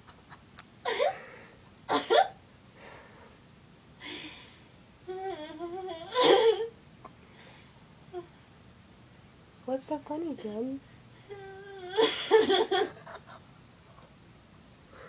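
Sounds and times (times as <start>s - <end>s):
woman laughing in her sleep: 0.0s - 2.3s, 6.0s - 6.7s, 11.8s - 13.5s.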